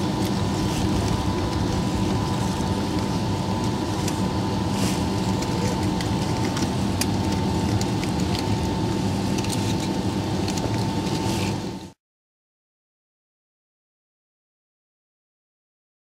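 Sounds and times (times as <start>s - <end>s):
jet engines idling hum: 0.0s - 12.0s
thin steady whine: 0.0s - 12.0s.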